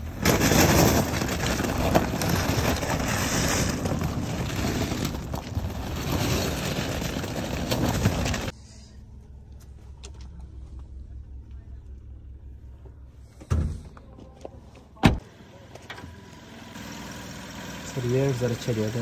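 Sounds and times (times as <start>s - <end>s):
tyres crunching on gravel: 0.0s - 8.6s.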